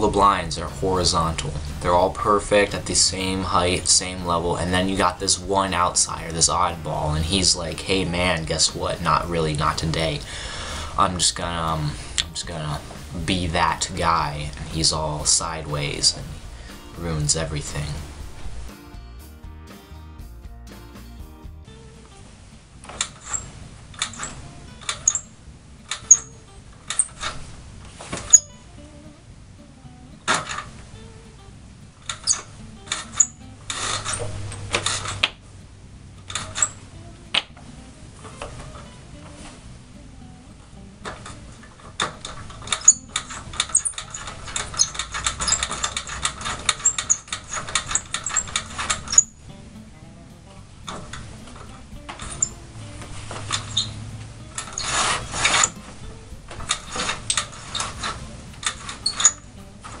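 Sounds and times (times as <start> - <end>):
blind cord mechanism clicking: 22.8 - 28.4, 30.2 - 30.9, 32.0 - 35.5, 36.2 - 39.7, 41.0 - 49.4, 50.9 - 60.0
window blind slats rattling: 26.8 - 28.4, 30.3 - 30.8, 32.0 - 35.4, 36.2 - 36.8, 41.0 - 49.2, 53.1 - 60.0
blind cord lock clicking: 42.0 - 49.2.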